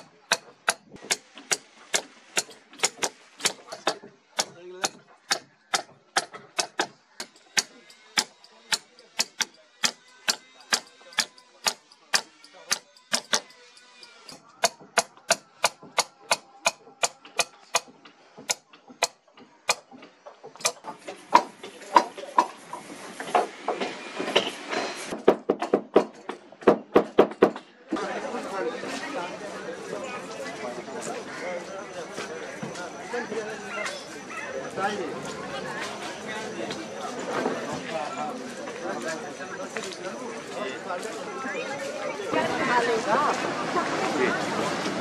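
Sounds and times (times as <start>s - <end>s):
boatyard noise: 0.0s - 45.0s
hammer tapping caulking iron: 0.3s - 13.6s, 14.6s - 19.9s
murmur of voices: 27.6s - 45.0s.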